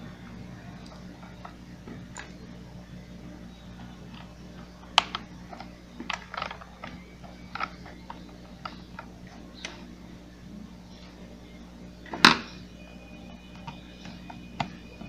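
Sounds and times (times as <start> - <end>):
plastic parts clicking and knocking: 4.9 - 9.8.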